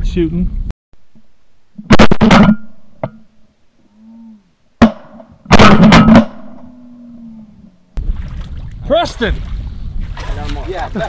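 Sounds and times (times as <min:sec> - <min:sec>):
shotgun blasts: 0:04.8 - 0:06.7.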